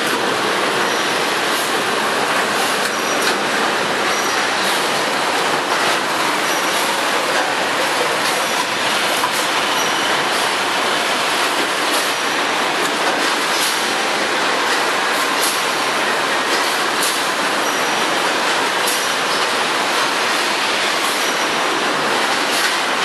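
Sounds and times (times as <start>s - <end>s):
packaging machine din: 0.0s - 14.1s.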